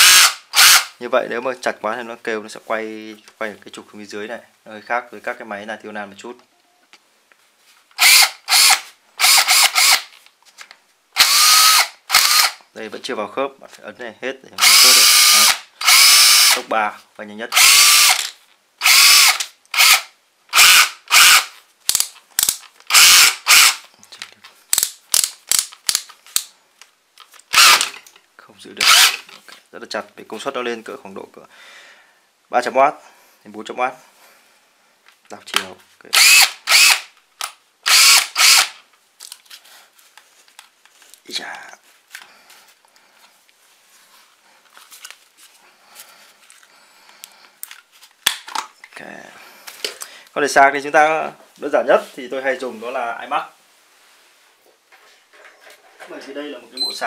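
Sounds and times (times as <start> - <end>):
cordless drill whirring: 0.0 - 0.9, 8.0 - 10.1, 11.2 - 12.6, 14.6 - 16.6, 17.5 - 21.5, 22.9 - 23.8, 27.5 - 27.9, 28.8 - 29.2, 36.1 - 37.2, 37.8 - 38.8
handling rustling and scraping: 10.1 - 11.0, 38.9 - 49.0, 53.6 - 56.6.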